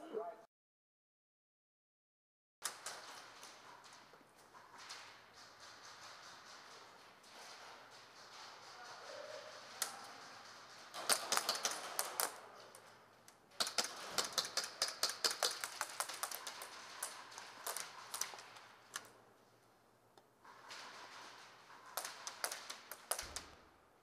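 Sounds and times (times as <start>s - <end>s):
airsoft gunfire: 10.9s - 12.4s, 13.6s - 18.5s, 21.8s - 23.6s.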